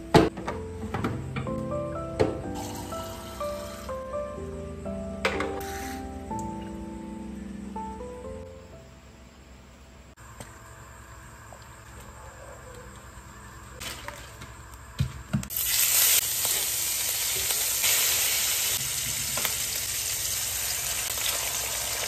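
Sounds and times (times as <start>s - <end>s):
meat sizzling in hot oil: 15.5s - 22.0s.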